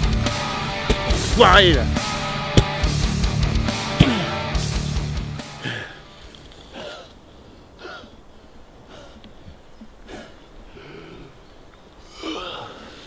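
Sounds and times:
man panting: 8.8s - 9.4s.

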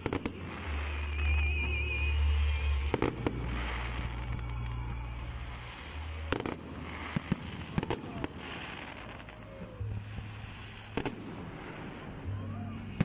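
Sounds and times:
fireworks crackle: 0.0s - 13.0s.

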